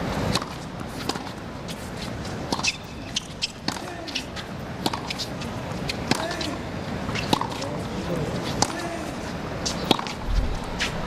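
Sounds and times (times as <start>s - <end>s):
low crowd murmur: 3.8s - 11.0s.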